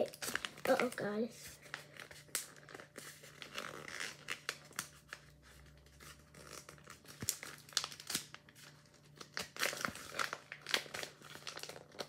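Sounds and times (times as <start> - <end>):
paper crinkling and rustling: 0.0 - 12.0.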